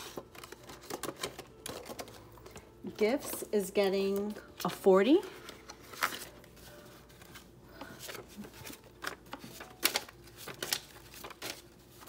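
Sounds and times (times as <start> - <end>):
banknotes rustling: 4.0 - 12.0.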